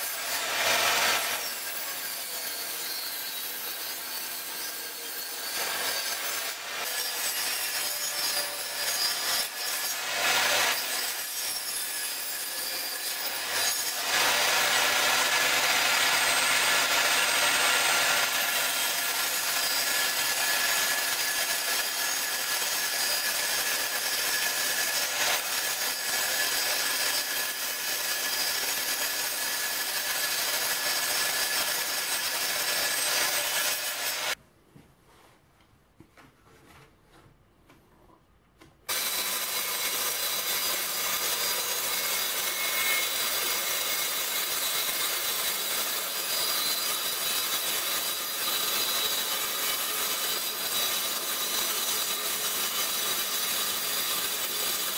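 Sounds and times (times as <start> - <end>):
table saw cutting wood: 0.0 - 34.4, 38.9 - 54.9.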